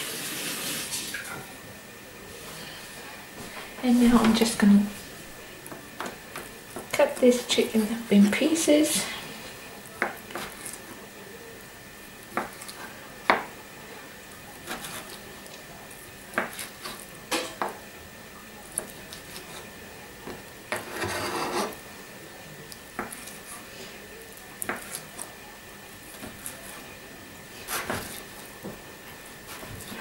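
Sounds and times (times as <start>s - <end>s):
knife scraping cutting board: 14.6s - 15.2s, 20.7s - 21.8s, 27.6s - 28.3s.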